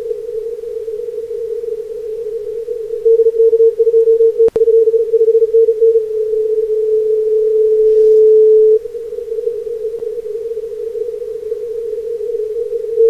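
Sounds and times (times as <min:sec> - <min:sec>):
morse code tone: 0:03.0 - 0:08.8.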